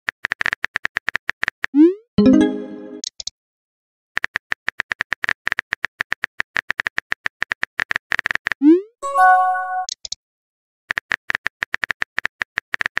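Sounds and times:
chiming message tone: 2.2s - 3.0s, 9.0s - 9.9s.

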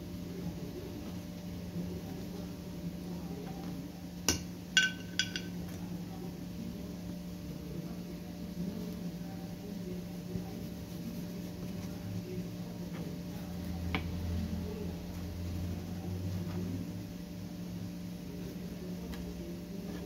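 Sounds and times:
steady low hum: 0.0s - 20.0s
kitchenware clinking: 4.3s - 5.7s.

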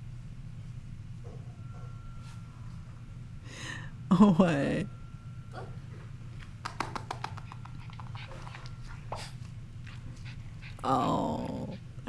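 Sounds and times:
small dog whining: 7.3s - 11.9s.

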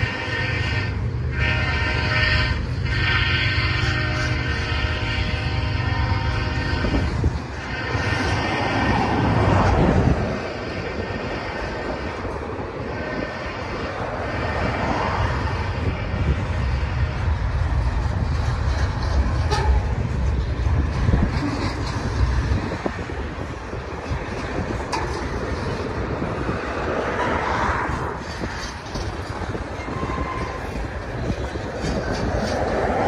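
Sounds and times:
train wheels rumbling on rail: 0.0s - 33.0s.

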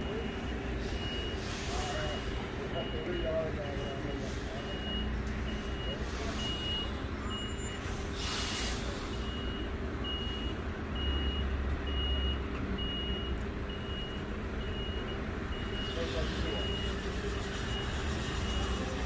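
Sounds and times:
truck engine rumble: 0.0s - 19.0s
air hiss: 8.2s - 9.2s.

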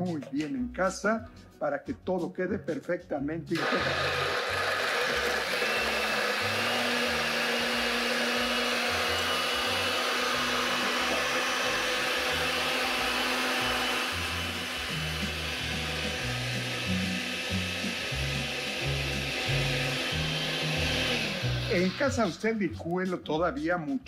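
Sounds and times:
blender motor whining: 3.6s - 22.2s.

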